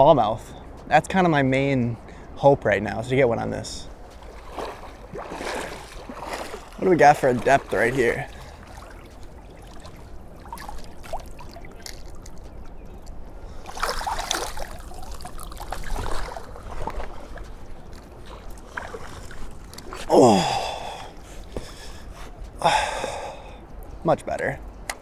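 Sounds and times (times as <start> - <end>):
water sloshing and splashing: 3.8 - 22.2.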